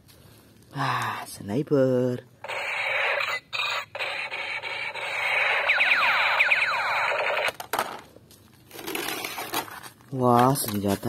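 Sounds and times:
laser-like zaps: 2.4 - 7.6
toy gun buzzing hiss: 2.5 - 7.6.

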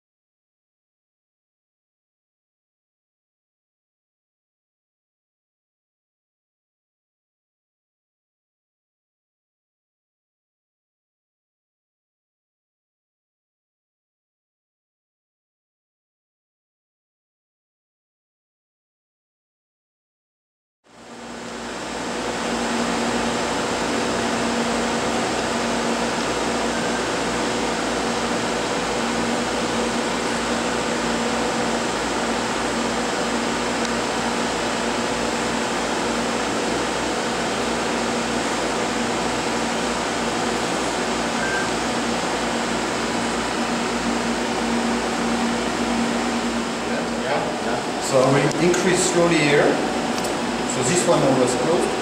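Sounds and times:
laboratory equipment humming: 20.9 - 52.0
faint high whine: 22.6 - 30.7, 39.5 - 43.0.

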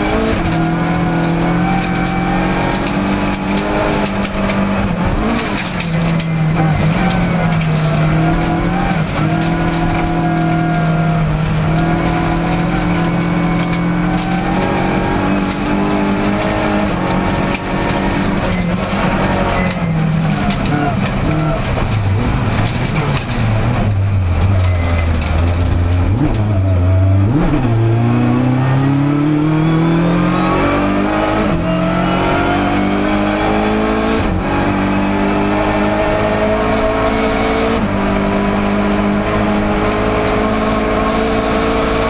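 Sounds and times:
tyres on gravel: 0.0 - 28.1
rally car engine revving: 0.0 - 42.0.

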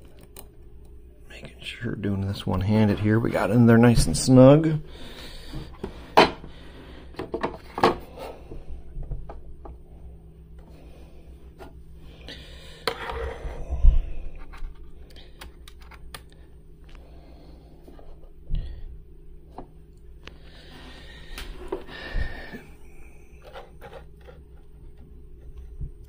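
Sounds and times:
faint steady hum: 0.0 - 26.0
scraping and rubbing: 23.4 - 24.9.

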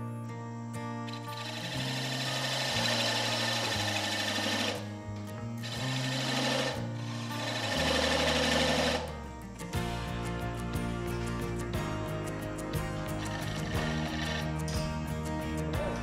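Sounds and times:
background music: 0.0 - 16.0
lathe tool scraping wood: 1.1 - 4.9, 5.6 - 9.2, 13.1 - 14.8.

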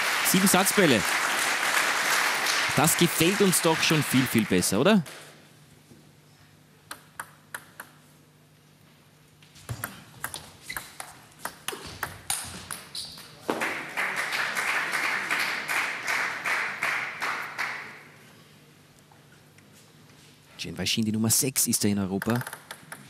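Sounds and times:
audience applauding: 0.0 - 4.9, 13.5 - 18.1
table tennis ball bouncing: 6.9 - 8.0, 9.7 - 12.9, 22.2 - 23.0.

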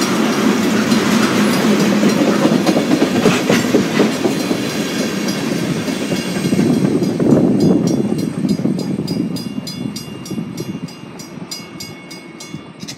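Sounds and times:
crossing warning bell ringing: 0.0 - 12.9
freight train rumbling on rails: 0.0 - 12.9.

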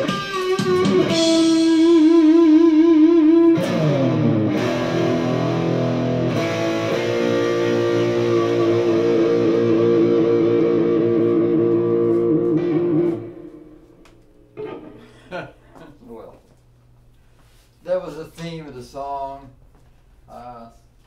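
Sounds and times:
electric guitar with vibrato: 0.0 - 15.4.

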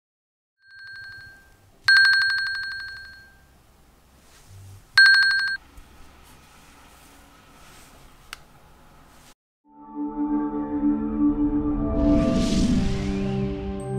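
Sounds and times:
watch alarm pulsing beep: 0.7 - 3.4, 5.0 - 5.6.

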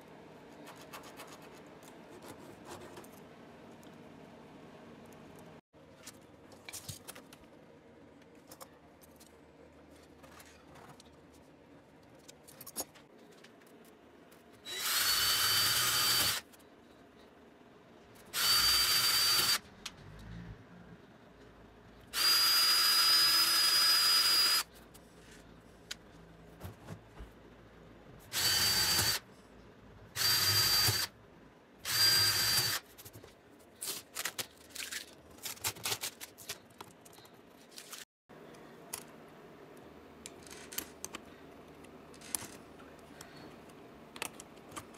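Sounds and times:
small clicks and handling noises: 8.2 - 14.6, 33.0 - 44.9
electric drill whining: 14.7 - 16.4, 18.3 - 19.6, 22.1 - 24.7, 28.3 - 29.2, 30.2 - 31.1, 31.8 - 32.8.

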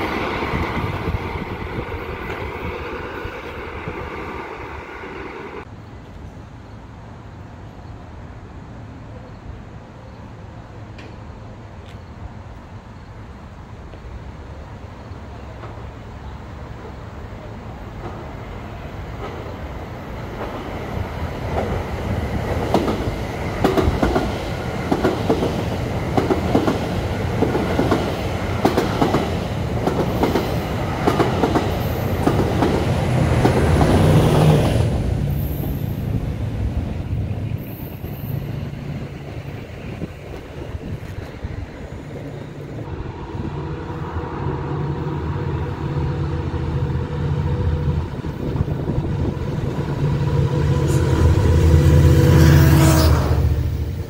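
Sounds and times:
train rumble and engine drone: 0.0 - 54.0
train wheels clacking: 22.4 - 34.9
diesel engine drone: 42.5 - 54.0.

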